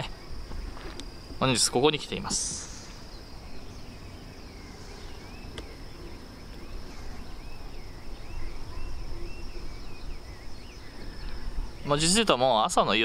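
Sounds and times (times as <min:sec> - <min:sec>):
high insect trill: 0:00.0 - 0:13.0
insect chirps: 0:00.0 - 0:13.0.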